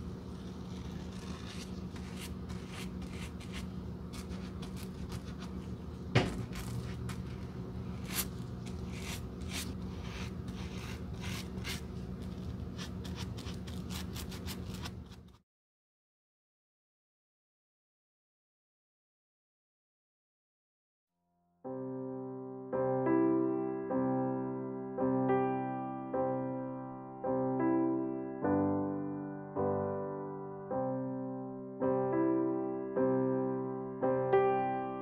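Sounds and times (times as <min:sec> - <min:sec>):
stiff brush scraping: 0:00.3 - 0:05.7, 0:06.4 - 0:15.4.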